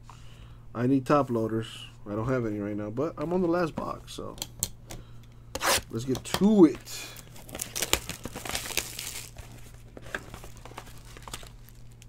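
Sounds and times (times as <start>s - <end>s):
foil card pack handled: 6.6s - 12.0s
plastic wrapping crinkling: 6.7s - 12.0s.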